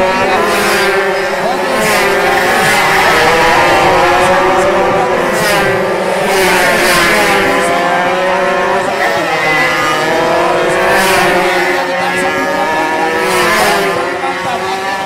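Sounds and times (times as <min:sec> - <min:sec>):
racing motorcycles at full throttle: 0:00.0 - 0:15.0.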